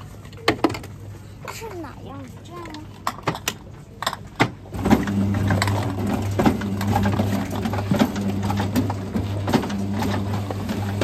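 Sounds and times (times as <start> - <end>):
juicer knocking: 4.2 - 11.0
juicer motor hum: 4.4 - 11.0.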